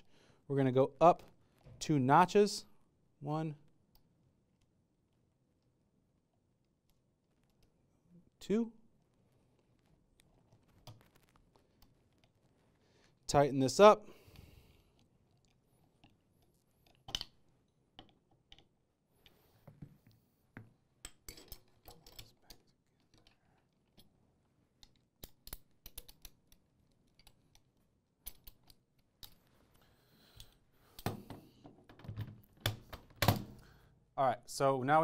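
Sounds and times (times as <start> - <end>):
metallic clicks of gun parts: 24.8 - 29.4.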